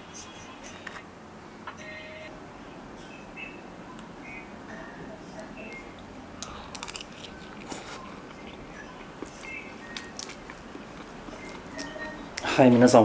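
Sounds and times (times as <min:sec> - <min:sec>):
quiet chewing: 0:05.4 - 0:12.5.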